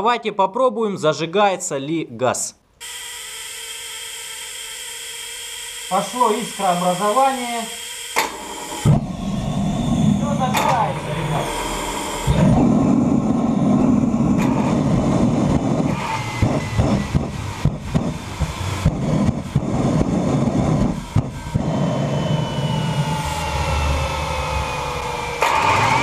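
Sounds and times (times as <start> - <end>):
spark plugs sparking: 2.8 - 9.3
thin whine falling in pitch: 2.8 - 26.0
gas flame rumbling and popping: 8.2 - 26.0.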